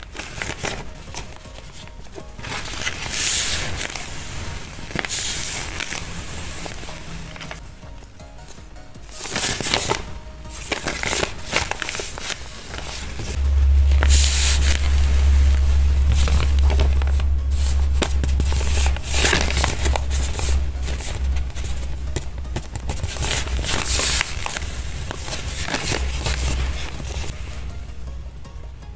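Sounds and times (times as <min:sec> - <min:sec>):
crinkling taped paper: 0:00.0 - 0:07.6, 0:08.4 - 0:13.4, 0:16.0 - 0:27.6
steady low hum: 0:12.6 - 0:28.6.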